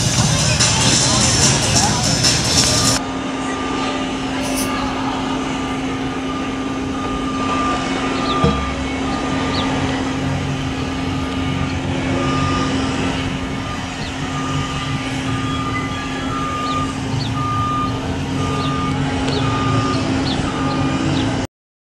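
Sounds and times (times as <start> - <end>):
engine hum and low rumble: 0.0 - 21.5
backup alarm beeping: 4.5 - 21.1.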